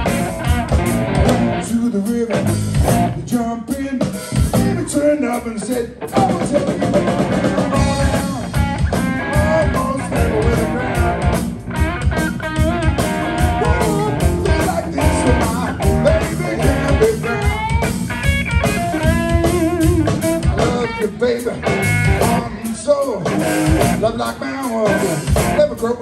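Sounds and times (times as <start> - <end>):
bass guitar: 0.0 - 26.0
drum kit: 0.0 - 26.0
electric guitar lead with bent notes: 0.0 - 26.0.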